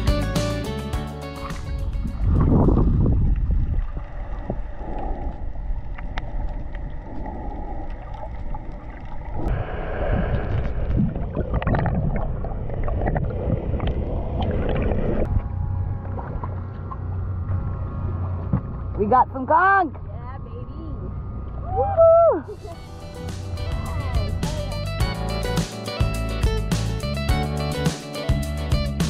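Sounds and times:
underwater rush of water: 1.4 - 18.6
underwater bubbling: 2.1 - 18.8.

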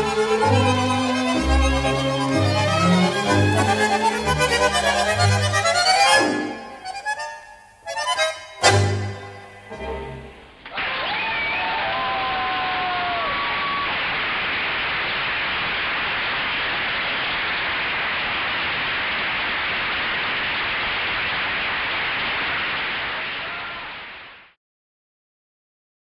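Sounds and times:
tango music: 0.0 - 11.0
crowd applauding: 10.6 - 24.3.

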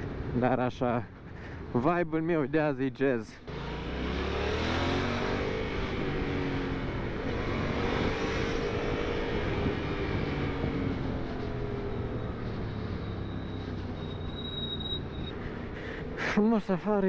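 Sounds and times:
road and wind noise: 0.0 - 17.0
motorcycle engine accelerating: 3.5 - 15.3.

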